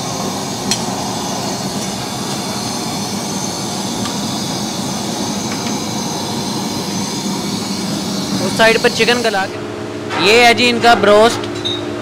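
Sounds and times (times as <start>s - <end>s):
gas burners rushing: 0.0s - 11.8s.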